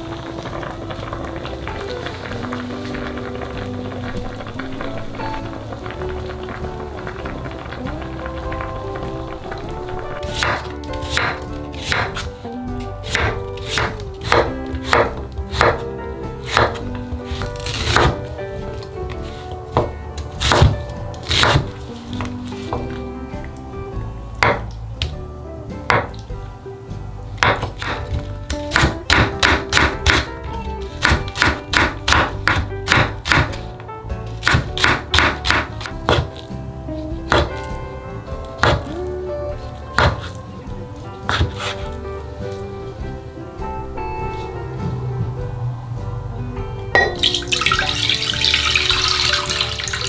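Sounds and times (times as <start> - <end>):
background music: 0.0 - 50.0
knife chopping on wooden board: 10.3 - 12.3, 13.0 - 15.8, 16.5 - 18.2, 19.8 - 21.7, 27.4 - 30.3, 31.0 - 33.6, 34.4 - 36.5, 37.3 - 37.6, 38.6 - 38.9, 40.0 - 40.4, 41.3 - 41.9.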